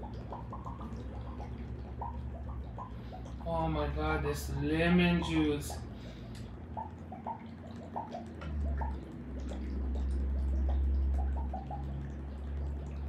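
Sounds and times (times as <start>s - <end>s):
liquid glugs and drips: 0.0s - 13.0s
steady low rumble: 0.0s - 13.0s.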